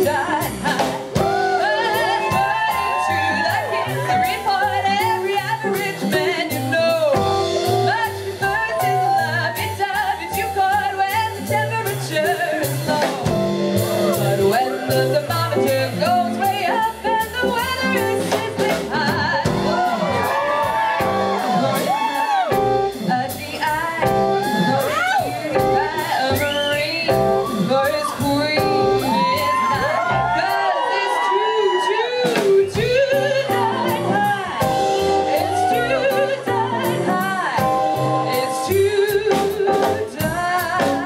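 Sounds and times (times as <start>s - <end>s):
jazz band playing swing: 0.0s - 41.0s
woman singing: 0.0s - 41.0s.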